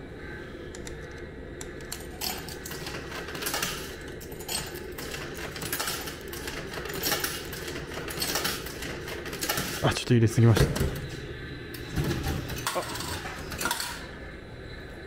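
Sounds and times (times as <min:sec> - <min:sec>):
coins clinking into vending machine: 0:01.8 - 0:09.9, 0:11.8 - 0:14.1.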